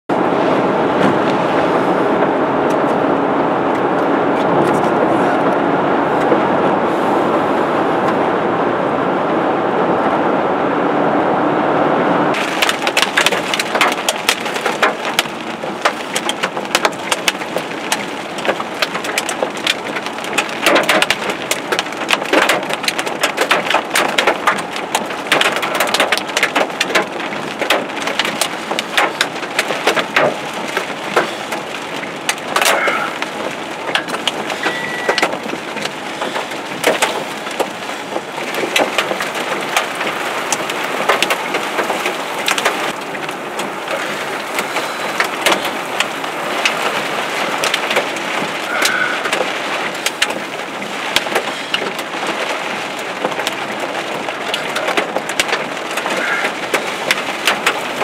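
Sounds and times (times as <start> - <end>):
rain pelting windshield: 0.1 - 58.0
road and wind noise in vehicle: 0.1 - 58.0
short high beep: 34.6 - 35.3.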